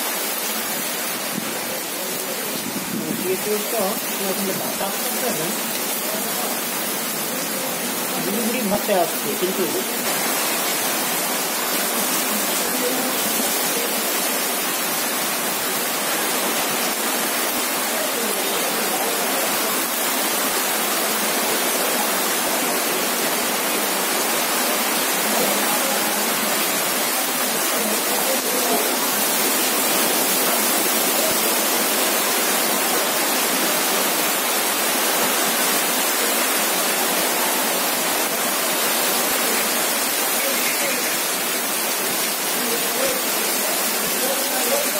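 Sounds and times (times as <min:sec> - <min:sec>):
heavy rain on wet pavement: 0:00.0 - 0:44.9.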